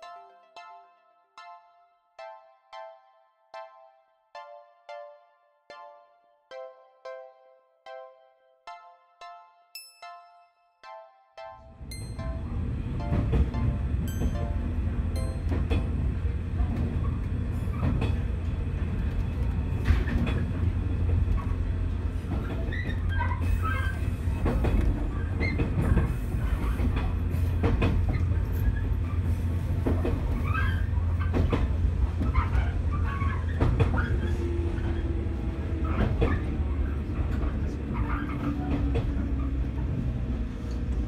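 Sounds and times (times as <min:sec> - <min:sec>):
electric train rumble: 0:11.8 - 0:41.0
rail joint clacks: 0:11.8 - 0:41.0
wheels squealing: 0:22.3 - 0:24.4, 0:30.2 - 0:31.6, 0:32.2 - 0:39.7.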